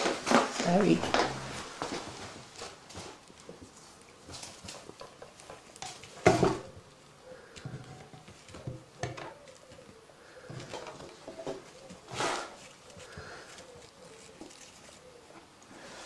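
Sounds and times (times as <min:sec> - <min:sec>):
tissue paper rustling: 0:11.6 - 0:15.3.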